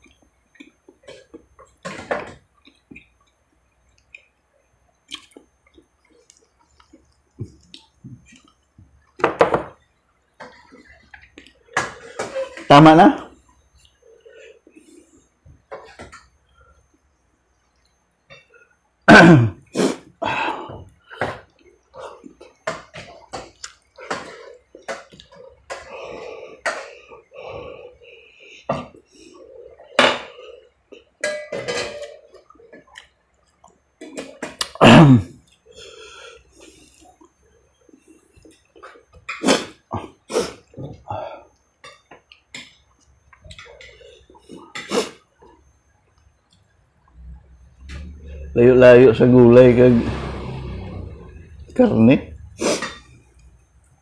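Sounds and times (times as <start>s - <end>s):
man chewing food: 0.0s - 9.2s, 20.9s - 31.2s, 32.1s - 34.8s, 35.4s - 48.4s
smacking and chewing clicks: 5.0s - 9.2s, 23.4s - 23.9s
person slurping: 50.0s - 53.0s.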